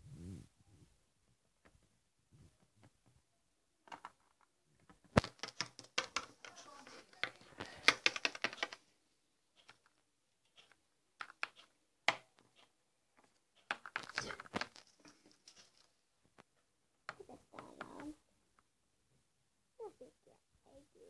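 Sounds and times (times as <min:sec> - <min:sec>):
rustling and clattering: 0:00.8 - 0:08.9, 0:09.5 - 0:16.7
plastic toys being handled: 0:03.8 - 0:08.9, 0:09.5 - 0:18.7.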